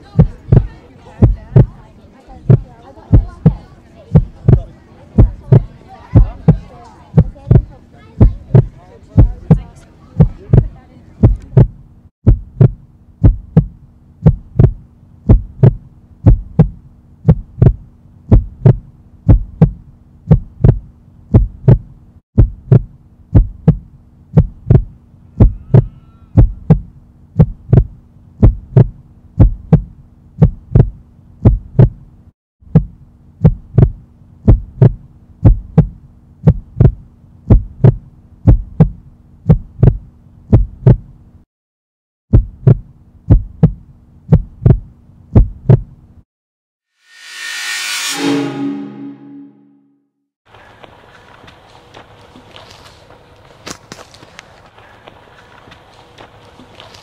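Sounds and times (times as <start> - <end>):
heartbeat thumps: 0.0 - 1.8, 2.4 - 6.6, 7.2 - 9.6, 10.2 - 32.0, 32.7 - 41.1, 42.3 - 46.0.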